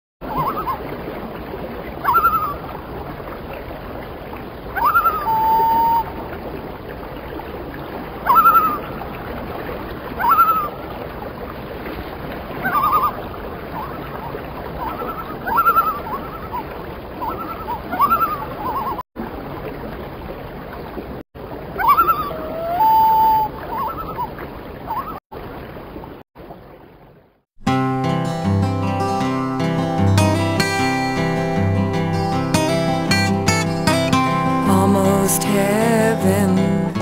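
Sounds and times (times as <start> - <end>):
loon calling: 0.2 - 0.9, 2.0 - 2.8, 4.7 - 6.2, 8.2 - 9.0, 10.2 - 11.0, 12.5 - 19.0, 21.8 - 25.2
watery background: 0.2 - 37.0.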